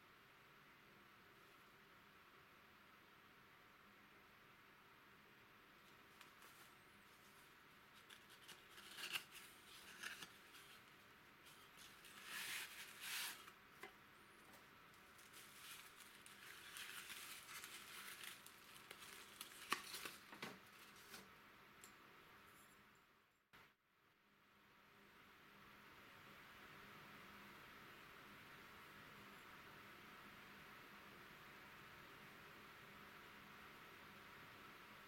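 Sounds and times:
paper wrapping being peeled off: 5.8 - 13.6, 14.5 - 21.3.

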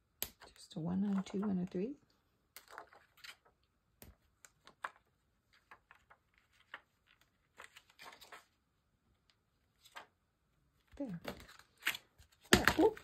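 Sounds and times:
paper rustling: 0.4 - 1.6, 2.6 - 3.6, 4.4 - 8.6, 9.7 - 10.2.

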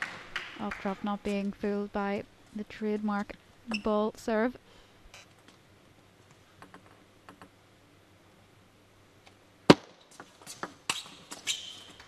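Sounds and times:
table tennis ball on bats and table: 6.5 - 7.6, 9.7 - 12.0.

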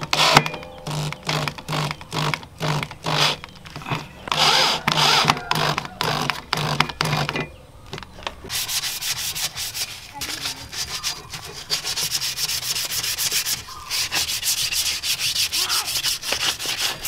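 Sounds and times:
electric drill driving screws: 4.3 - 6.8.

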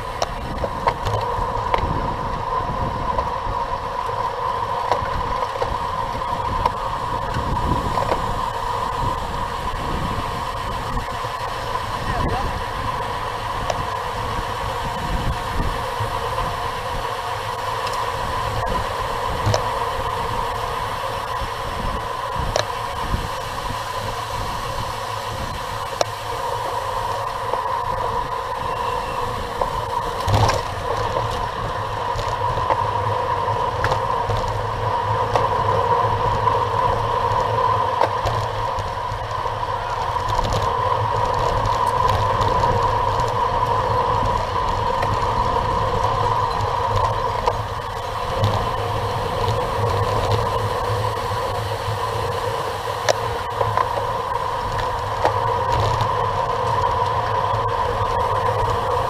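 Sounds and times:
bike tyre noise: 0.0 - 59.0
wind rushing: 5.1 - 35.2.

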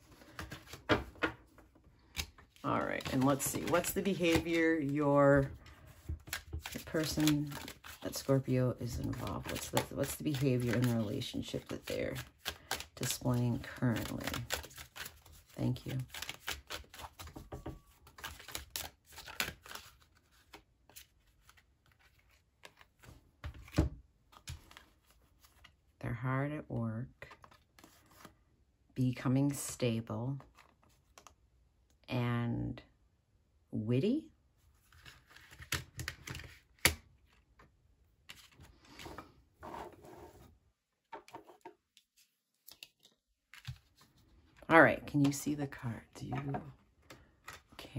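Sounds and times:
cards shuffling: 0.0 - 25.8, 27.3 - 28.4, 30.4 - 31.3, 34.8 - 37.6, 38.3 - 40.4, 41.4 - 44.6, 46.2 - 47.8.

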